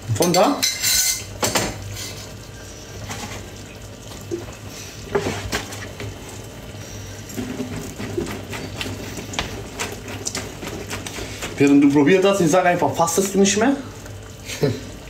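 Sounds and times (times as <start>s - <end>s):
wooden spoon stirring sauce: 4.3s - 14.2s.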